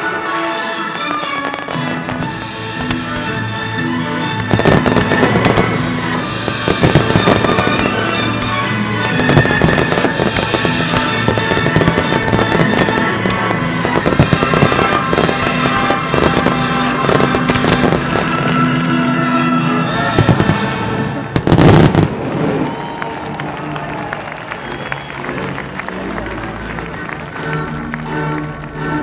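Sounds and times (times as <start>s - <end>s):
music: 0.0s - 29.0s
fireworks bursting and crackling: 0.9s - 3.7s, 4.3s - 23.4s.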